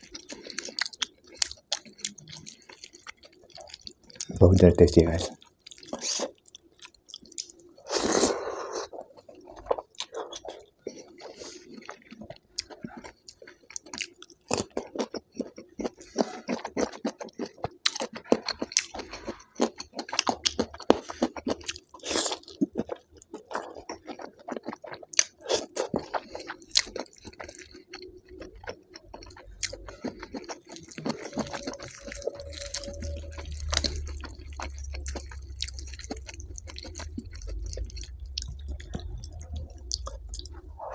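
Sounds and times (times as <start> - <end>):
open chewing and smacking: 0.0 - 40.9
wet squishing of food by hand: 8.9 - 40.9.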